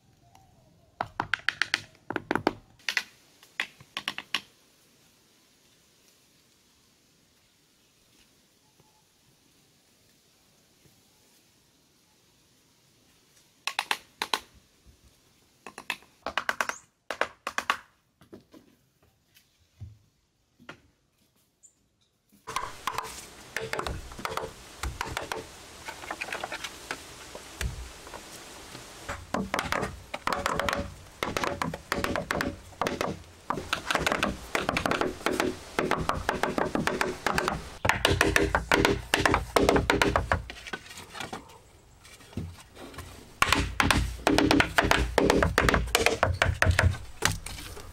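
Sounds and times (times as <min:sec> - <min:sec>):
hollow knocks on bamboo: 0:22.5 - 0:25.5, 0:27.6 - 0:28.2, 0:29.1 - 0:40.6, 0:43.4 - 0:47.4.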